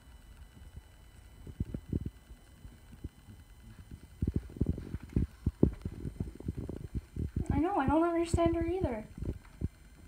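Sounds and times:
soft dull thumps and bumps: 3.0s - 7.7s.

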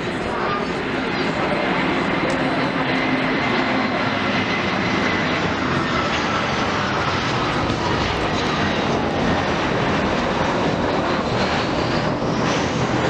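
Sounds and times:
jet engines running: 0.0s - 13.0s.

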